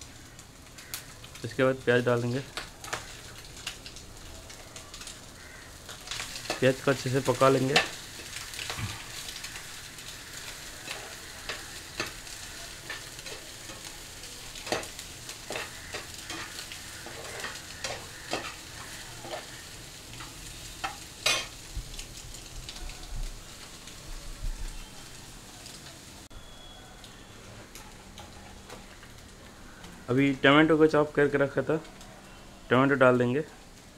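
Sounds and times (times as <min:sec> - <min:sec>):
food sizzling in oil: 0:00.0 - 0:33.9
metal spatula scraping pan: 0:14.6 - 0:18.6, 0:19.2 - 0:19.5.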